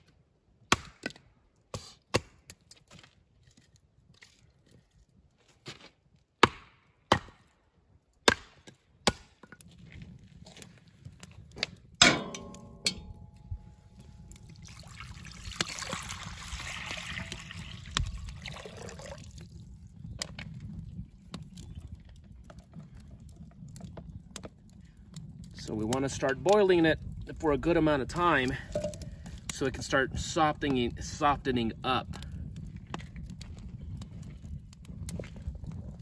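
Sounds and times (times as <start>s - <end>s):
ringing clank: 12.0s - 13.7s
water pouring into pot: 14.4s - 19.6s.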